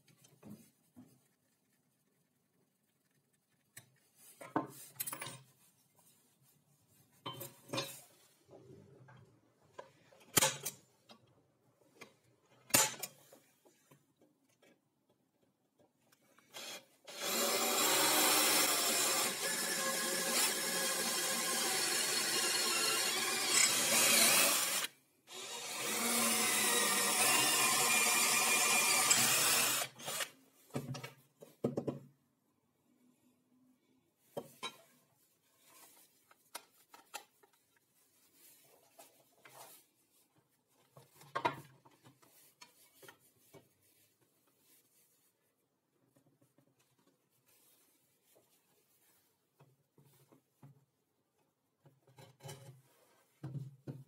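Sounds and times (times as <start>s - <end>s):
drill boring through steel: 16.6s - 30.3s.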